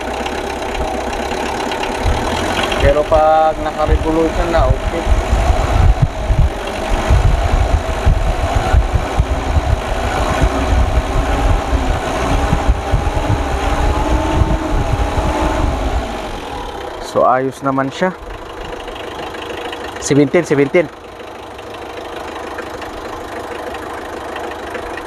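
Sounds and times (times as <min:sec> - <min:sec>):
diesel engine at raised revs: 0:00.0 - 0:25.0.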